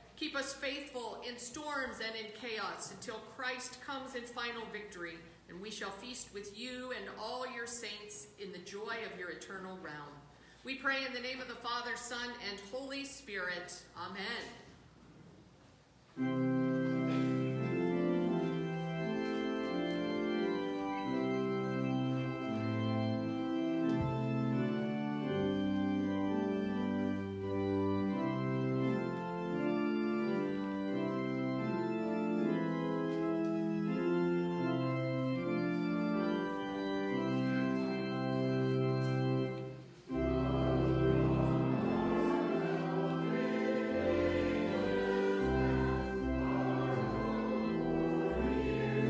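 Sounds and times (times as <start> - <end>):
church organ playing a hymn: 16.2 - 49.0.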